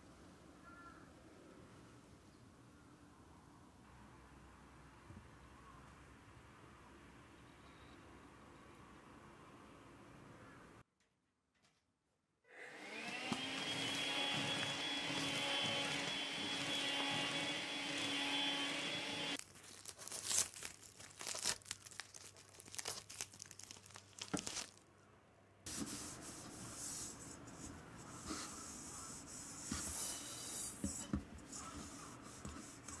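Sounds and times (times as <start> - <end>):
handheld vacuum cleaner whine: 12.5 - 19.4.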